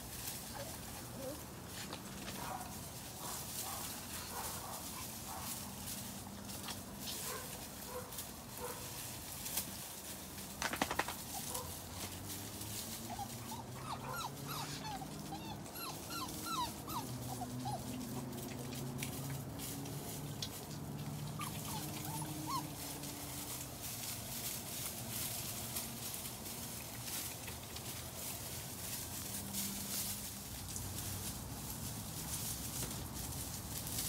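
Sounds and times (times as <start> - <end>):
puppies whimpering and squeaking: 12.8 - 19.0, 21.1 - 23.6.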